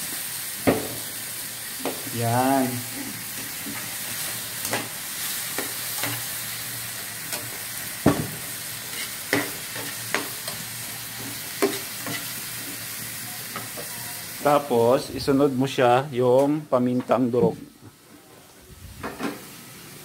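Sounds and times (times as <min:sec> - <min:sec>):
shrimp sizzling in a pan: 0:00.0 - 0:15.1
spatula knocking and scraping pan: 0:07.3 - 0:10.5, 0:11.2 - 0:12.3.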